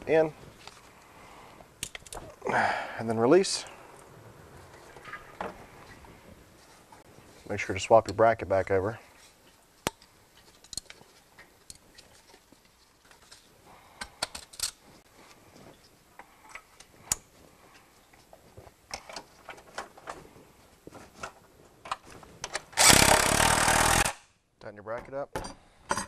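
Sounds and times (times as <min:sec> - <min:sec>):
clicks and clinks of handling parts: 0:01.8 - 0:02.4, 0:09.8 - 0:14.8, 0:18.1 - 0:20.2, 0:25.3 - 0:26.0.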